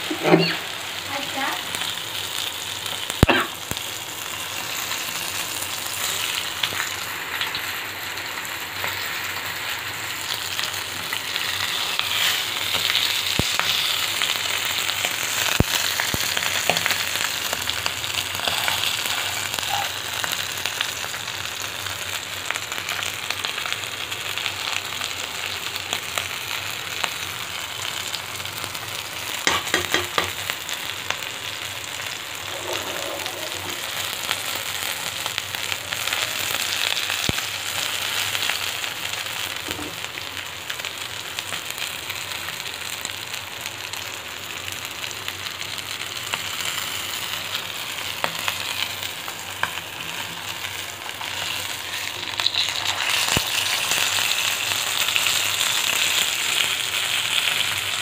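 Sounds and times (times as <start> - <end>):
fish sizzling in hot oil: 0.0 - 58.0.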